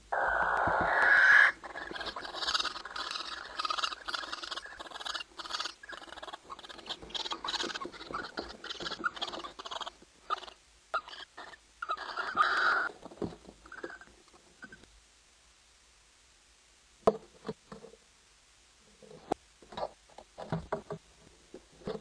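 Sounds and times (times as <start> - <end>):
barn owls screeching: 0.1 - 12.9, 13.6 - 14.8.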